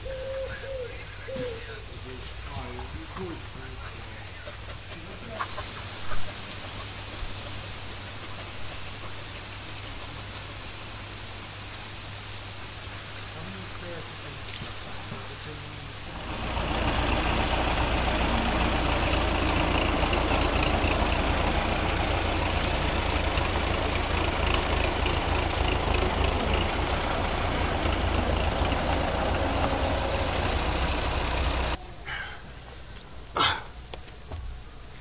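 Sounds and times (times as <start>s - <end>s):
diesel engine running: 15.2s - 31.8s.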